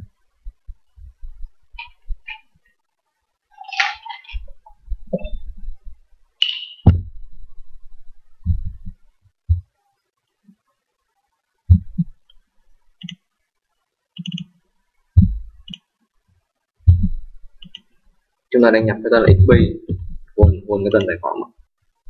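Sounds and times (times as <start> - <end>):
computer mouse clicks: 13.0 - 13.2, 14.2 - 14.6, 16.9 - 17.9.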